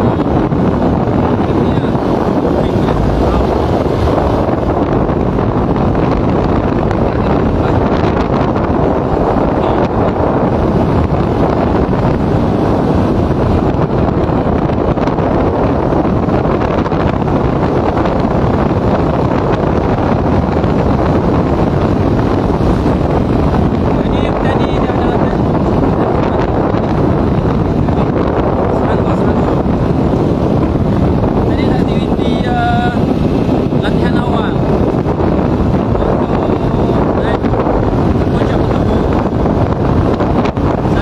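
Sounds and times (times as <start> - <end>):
motorcycle engine: 0.0 - 32.0
road noise: 0.0 - 41.0
wind buffeting microphone: 0.0 - 41.0.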